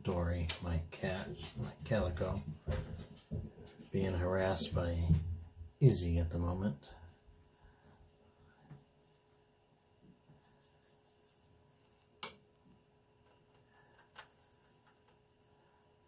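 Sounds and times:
brush on paper: 6.4s - 12.2s, 13.8s - 15.6s.

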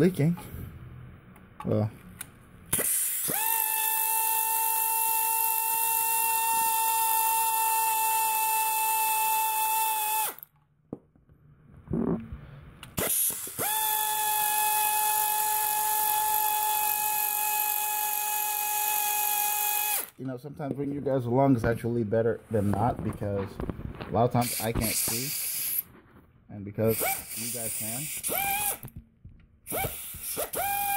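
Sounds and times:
cordless power tool whining: 2.8s - 10.5s, 13.0s - 20.2s, 27.0s - 28.9s, 29.7s - 30.9s.

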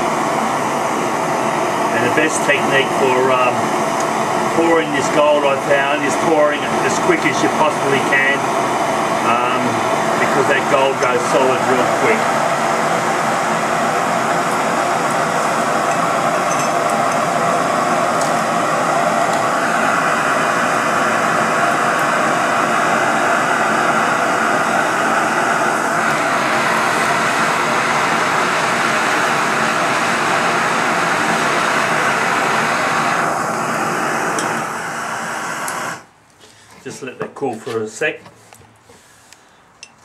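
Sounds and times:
gas torches hissing: 0.0s - 36.2s.

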